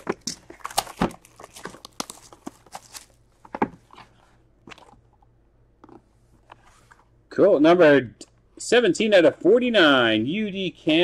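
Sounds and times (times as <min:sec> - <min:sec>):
plastic shrink-wrap crinkling: 0:00.0 - 0:03.2.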